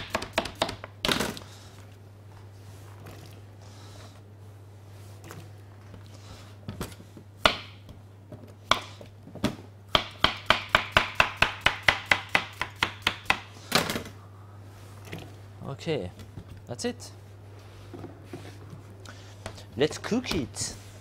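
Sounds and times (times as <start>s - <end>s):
knife chopping on chopping board: 10.0s - 13.5s.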